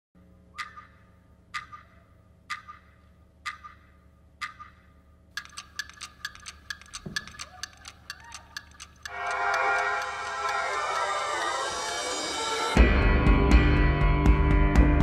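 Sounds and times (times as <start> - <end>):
clock ticking: 1.5 - 1.8, 2.4 - 3.8, 4.4 - 12.8.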